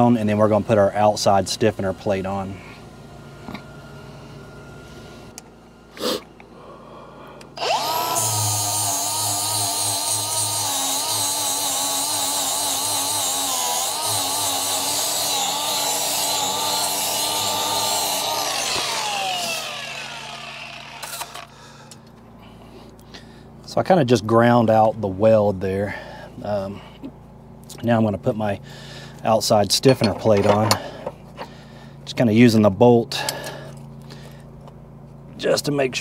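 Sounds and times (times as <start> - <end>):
angle grinder grinding steel: 7.6 - 21.5.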